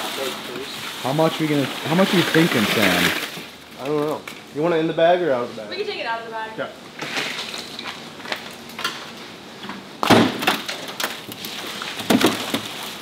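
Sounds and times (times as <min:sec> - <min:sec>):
plastic bag crinkling: 0:00.0 - 0:04.2.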